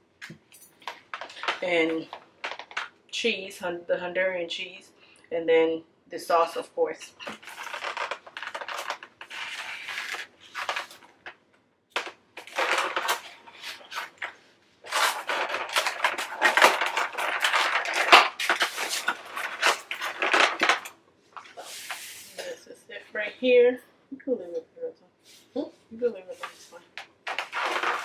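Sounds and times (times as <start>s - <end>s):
foam containers crunching and creaking: 7.2s - 11.3s, 12.0s - 22.0s, 26.4s - 28.0s.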